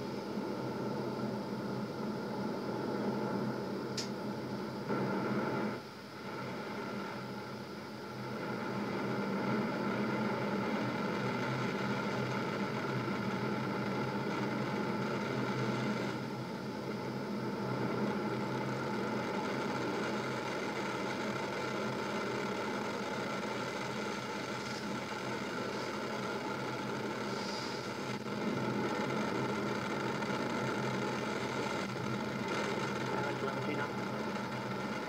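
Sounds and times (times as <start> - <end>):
rocket engines rumbling: 0.0 - 35.0.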